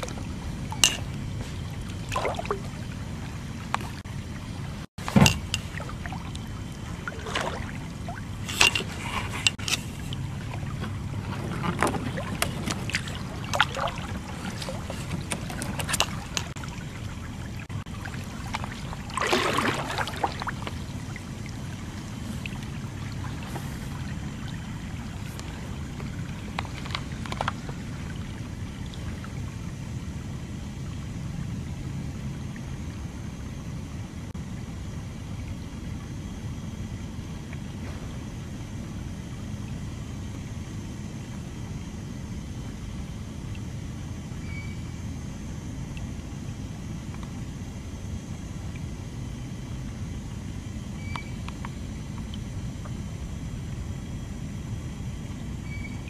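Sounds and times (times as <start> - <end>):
steady low hum: 0.0 - 56.0
knocks and clicks against hull: 5.0 - 6.4, 8.5 - 16.6, 25.3 - 27.8
paddle scraping and splashing: 8.4 - 16.6.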